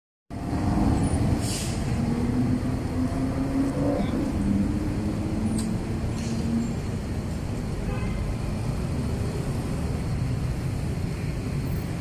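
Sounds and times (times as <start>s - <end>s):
motorbike and car engines passing: 0.3s - 12.0s
brief hiss: 1.4s - 1.9s.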